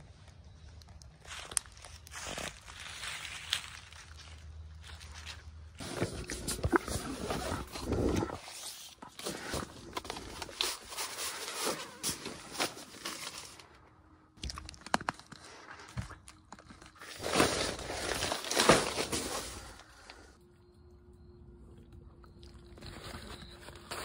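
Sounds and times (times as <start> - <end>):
rustling and crinkling packaging: 0.6 - 13.8, 14.5 - 20.2, 22.3 - 24.0
faint steady hum: 17.7 - 24.0.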